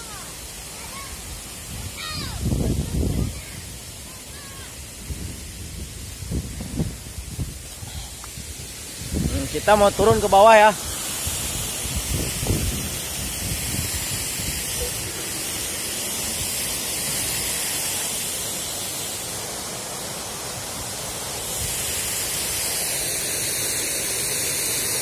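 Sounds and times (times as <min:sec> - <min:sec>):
water rushing over stone weir: 0:00.0 - 0:25.0.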